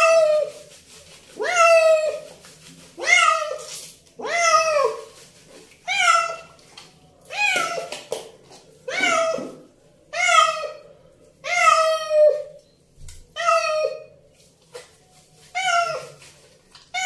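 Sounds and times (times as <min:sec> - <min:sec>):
cat meowing: 0:05.9 - 0:06.5, 0:11.4 - 0:12.4, 0:13.4 - 0:14.1.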